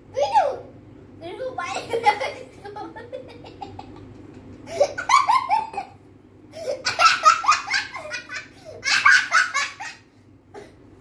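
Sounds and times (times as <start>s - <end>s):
boy giggling: 1.7s - 6.0s.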